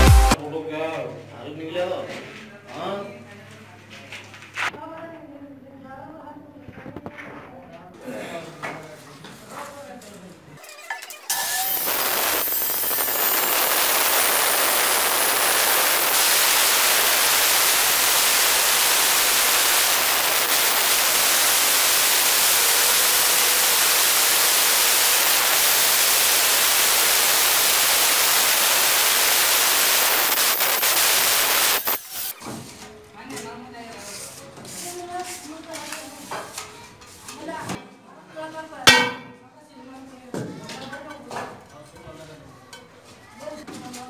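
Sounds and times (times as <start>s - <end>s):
stone cutter grinding stone: 11.0s - 32.3s.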